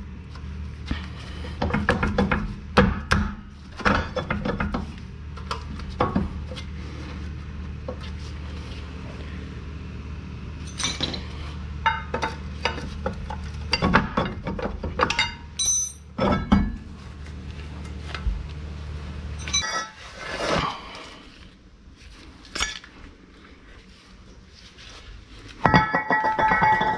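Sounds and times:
steady low hum: 0.0s - 26.9s
metallic clinks of tools: 15.6s - 16.1s.

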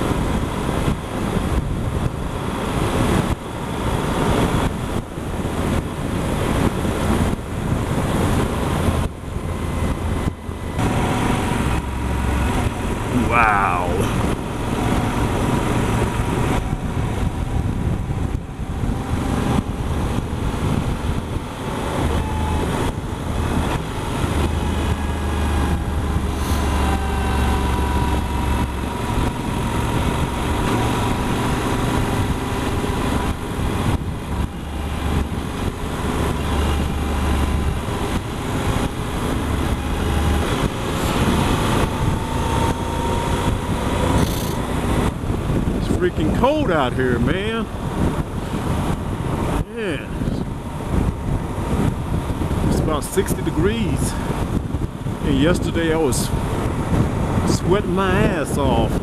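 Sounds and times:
faint engine whine: 0.0s - 59.0s
wind rush on microphone: 0.0s - 59.0s
motorcycle engine running: 3.4s - 46.6s.

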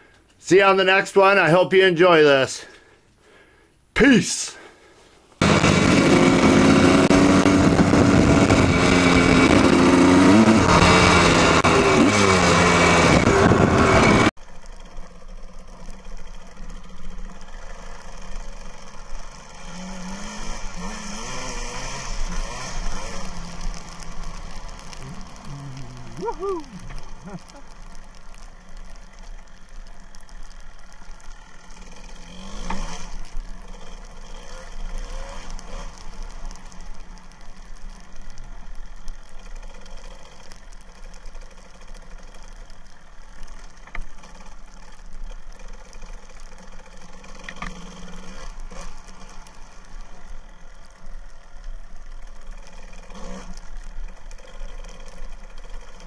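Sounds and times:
motorcycle engine revving: 5.4s - 51.6s, 52.2s - 56.0s.

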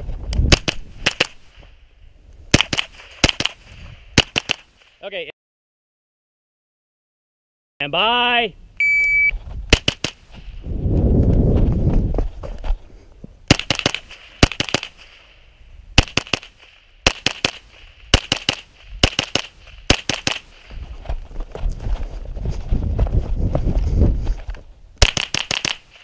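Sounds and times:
rifle shots: 0.5s - 1.6s, 2.5s - 4.9s, 9.7s - 10.3s, 13.5s - 15.3s, 16.0s - 20.6s, 25.0s - 26.0s.

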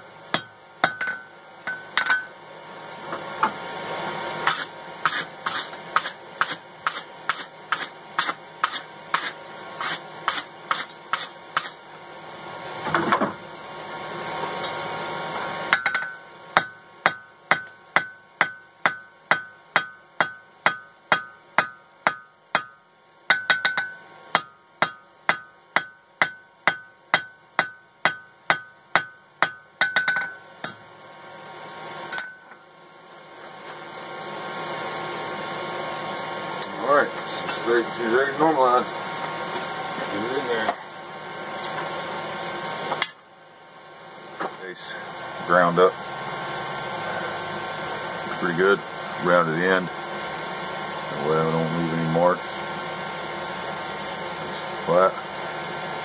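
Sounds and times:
hammer striking steel on anvil: 0.3s - 2.4s, 15.7s - 30.8s, 32.1s - 32.6s.

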